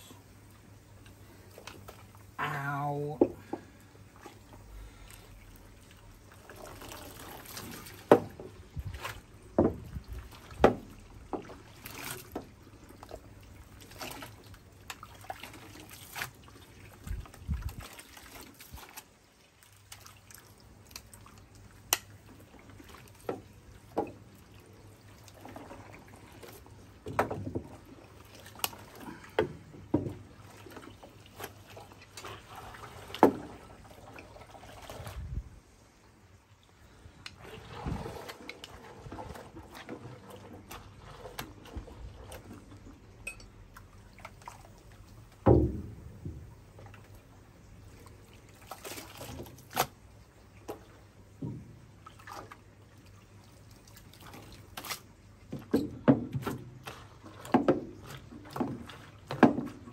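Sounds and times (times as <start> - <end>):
water splashing: 0.0 - 59.9
sharp knocks: 45.5 - 46.0.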